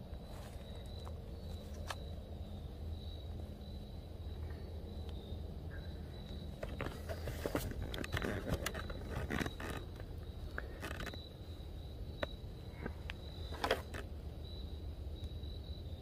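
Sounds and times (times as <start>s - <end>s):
camera handling scraping and rustling: 6.6s - 10.1s, 10.7s - 11.2s, 13.5s - 14.1s.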